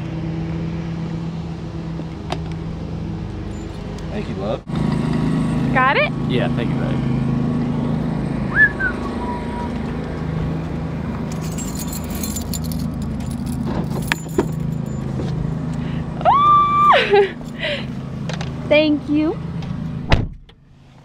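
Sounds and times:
engine humming: 0.0 - 21.0
keys jangling: 3.5 - 3.9, 11.3 - 15.2.

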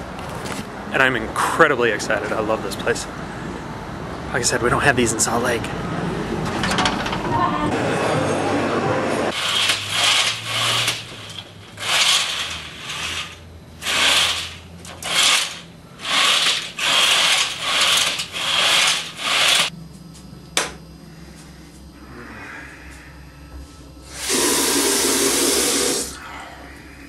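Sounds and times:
curtain runners rasping along rod: 9.3 - 19.7.

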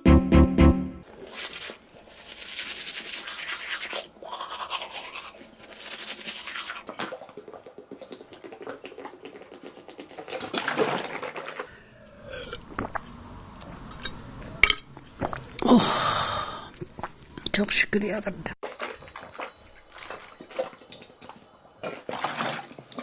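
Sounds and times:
toothbrush scrubbing teeth: 1.1 - 11.7.

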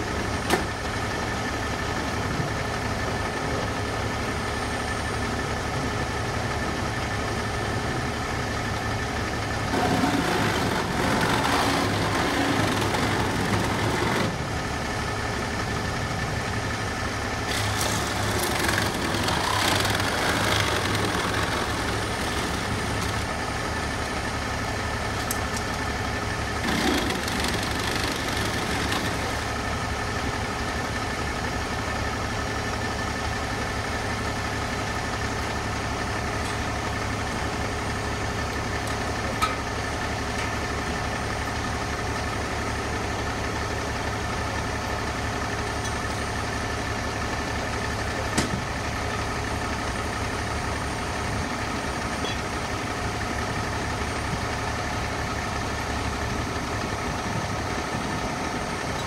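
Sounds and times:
diesel engine idling: 0.0 - 59.0
steady whine: 7.4 - 35.6.

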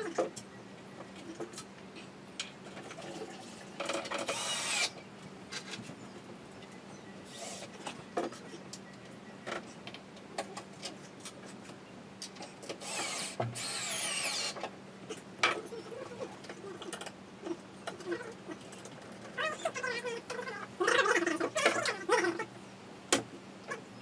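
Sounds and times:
cordless screwdriver driving screws: 4.2 - 4.9, 12.8 - 14.6.

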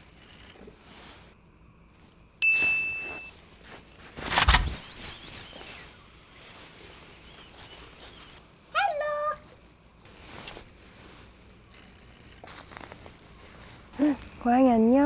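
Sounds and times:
high ding: 2.4 - 3.3.

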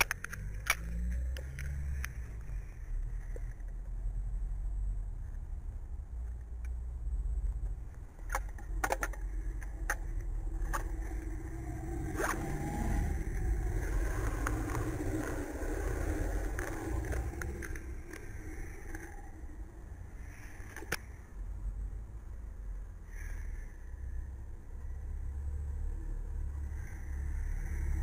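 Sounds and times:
sharp clicks: 0.0 - 2.6
road traffic rumble: 0.0 - 28.0.

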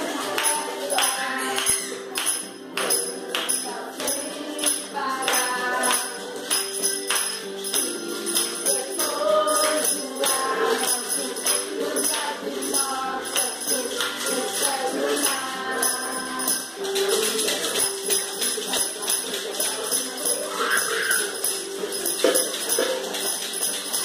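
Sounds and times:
hand-held shakers: 0.0 - 24.0
metal sleigh rattle shaken in time: 0.0 - 24.0
voices singing: 0.0 - 24.0.

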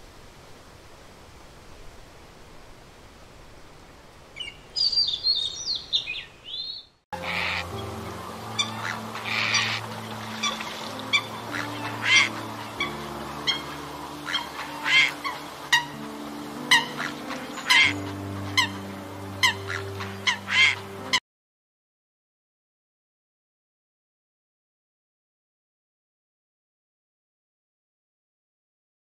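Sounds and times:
birds honking calls: 4.4 - 21.2
soft background music: 7.2 - 21.2.

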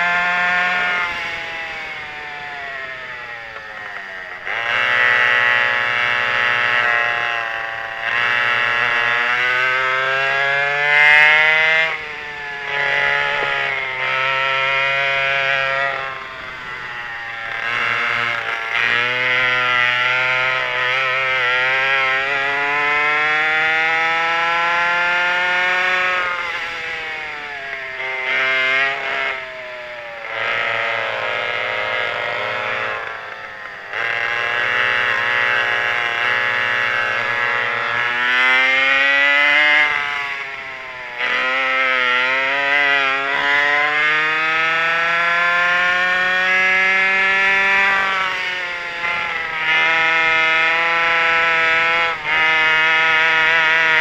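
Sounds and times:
two-stroke kart engines racing: 0.0 - 54.0.

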